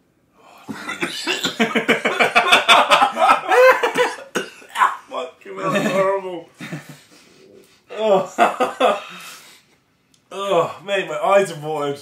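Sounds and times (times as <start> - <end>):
man coughing: 0.7 - 1.9, 3.8 - 4.9
man laughing: 0.7 - 5.0, 5.6 - 9.1.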